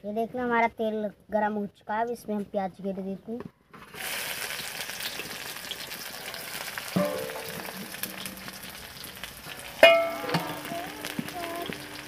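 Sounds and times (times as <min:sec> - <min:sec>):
onions sizzling in oil: 0:03.9 - 0:12.0
metal clang against pan: 0:07.0 - 0:08.6, 0:09.8 - 0:11.8.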